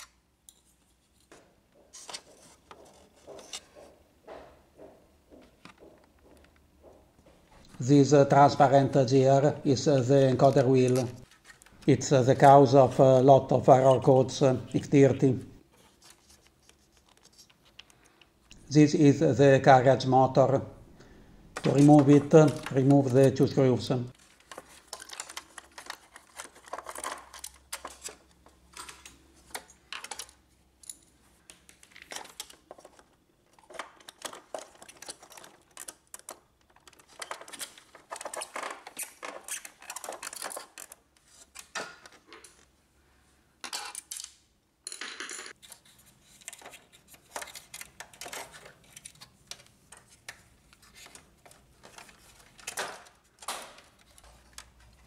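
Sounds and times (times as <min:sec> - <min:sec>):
parts tapping and rattling: 0:21.0 - 0:23.4, 0:24.1 - 0:42.7, 0:43.6 - 0:55.0.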